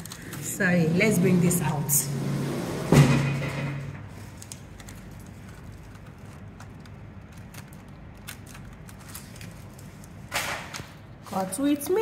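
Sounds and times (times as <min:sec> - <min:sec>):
plastic sheet clicking and crinkling: 0:00.0 - 0:00.5, 0:04.1 - 0:12.0
scissors cutting plastic sheet: 0:00.0 - 0:00.5, 0:04.3 - 0:12.0.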